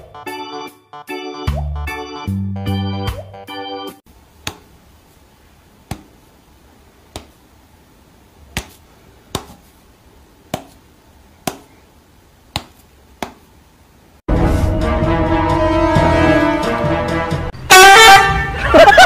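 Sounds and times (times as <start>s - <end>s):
music: 0.0s - 4.0s, 14.3s - 18.8s.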